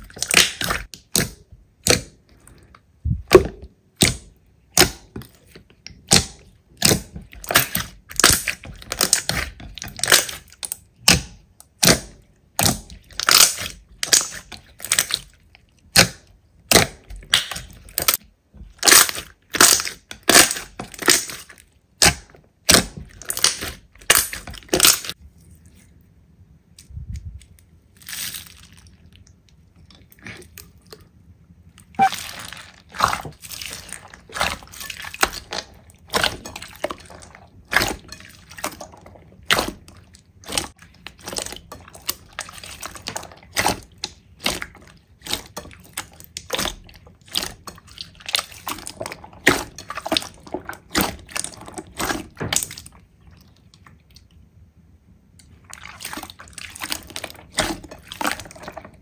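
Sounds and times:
crunchy slime being squeezed: 0.0 - 2.2, 6.0 - 25.2, 31.8 - 53.0.

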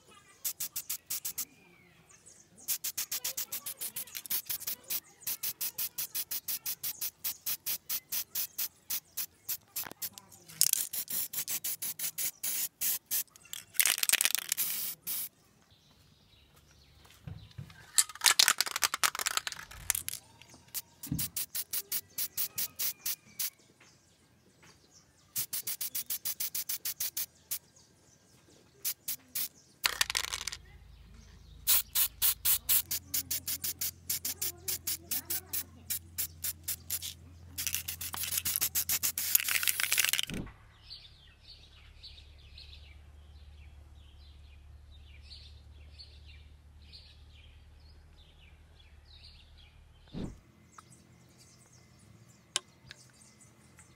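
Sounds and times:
spray can mixing ball rattling: 0.4 - 1.5, 2.7 - 15.3, 18.0 - 23.5, 25.4 - 27.6, 28.8 - 30.6, 31.7 - 40.3
spray paint hissing: 0.4 - 1.5, 2.6 - 15.3, 18.1 - 23.6, 25.4 - 27.6, 28.8 - 30.6, 31.6 - 40.4.

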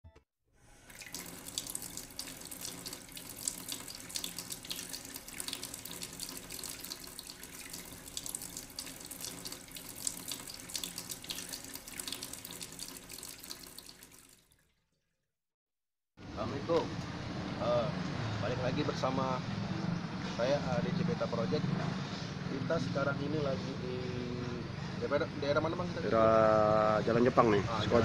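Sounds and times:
running splashing water: 0.8 - 14.7.

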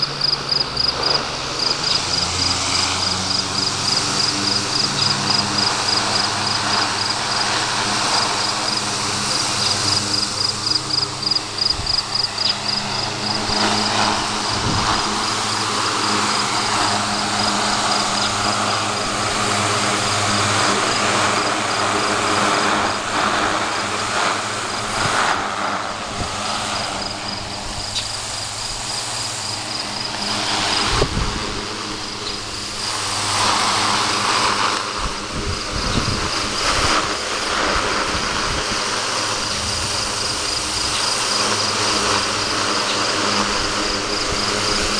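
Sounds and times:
insect chirping high-pitched: 0.0 - 19.2, 26.5 - 31.0
electric fan running: 0.0 - 44.9.

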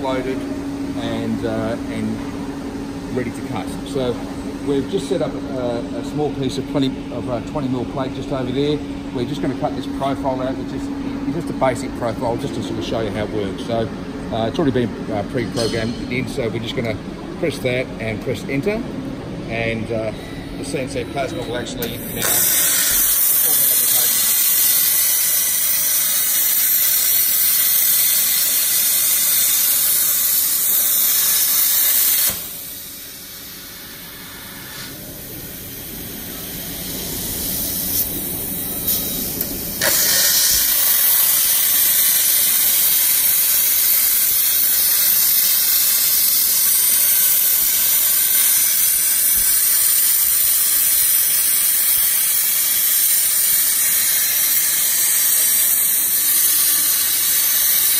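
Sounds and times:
plasma cutter hissing: 21.8 - 57.9.

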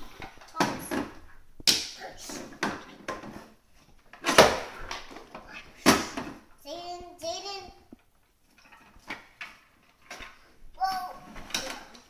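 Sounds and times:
plastic toys clattering on floor: 11.3 - 12.0.

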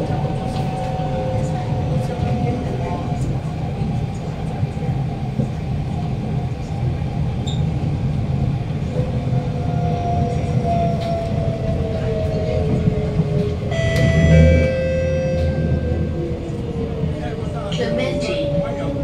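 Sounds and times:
train wheels rumbling on rail: 0.0 - 19.0
train motor whine: 13.7 - 16.7.

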